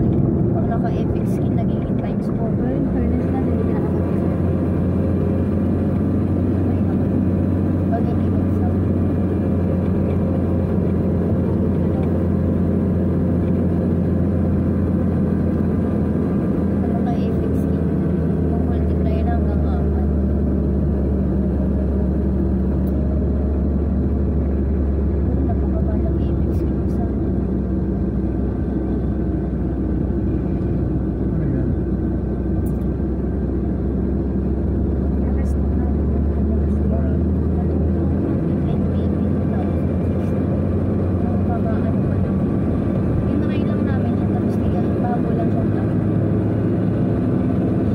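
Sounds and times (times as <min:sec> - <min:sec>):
car engine and road noise: 0:00.0 - 0:47.9.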